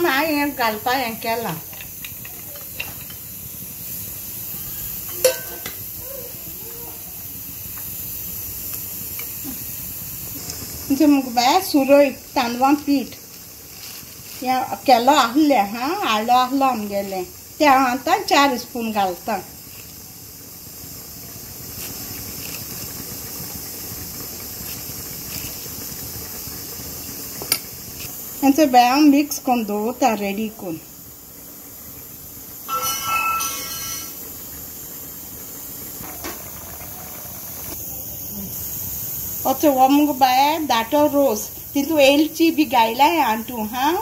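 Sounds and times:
pot simmering hiss: 0.0 - 44.0
spoon clinking against pot: 5.1 - 5.8.

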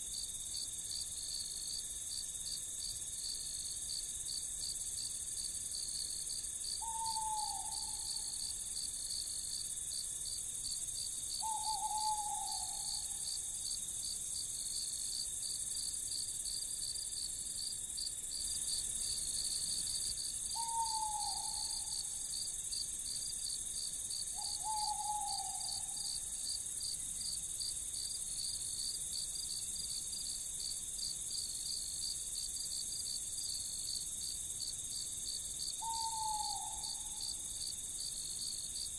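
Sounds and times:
crickets chirping: 0.0 - 38.9
high insect hiss: 0.0 - 38.9
owl hooting: 6.8 - 8.3, 11.4 - 13.2, 20.6 - 22.1, 24.4 - 26.1, 35.8 - 37.3.

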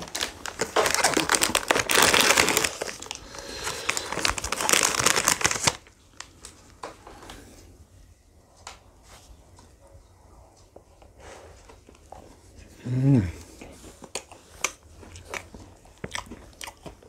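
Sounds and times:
wrapper crinkling and tearing: 0.0 - 6.5.

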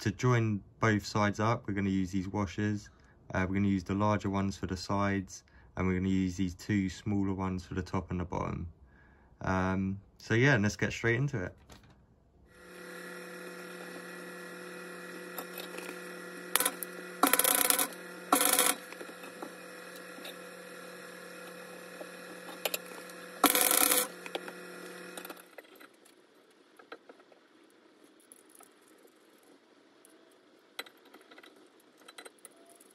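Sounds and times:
steady electrical hum: 12.2 - 32.9.

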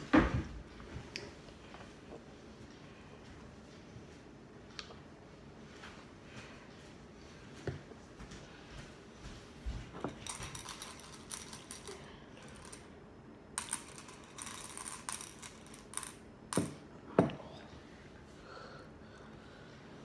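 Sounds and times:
candies rattling in ceramic bowl: 10.1 - 12.9, 13.6 - 16.2.

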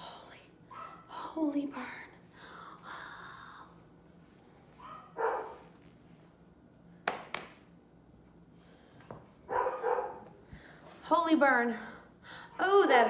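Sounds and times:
dog barking: 0.7 - 1.1, 4.8 - 5.7, 9.5 - 10.3.

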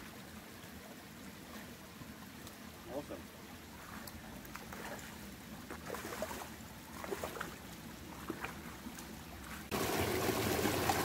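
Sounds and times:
loud steady rush of water: 0.0 - 11.0
running water of small river: 0.0 - 11.0
light ticks: 2.4 - 2.6.

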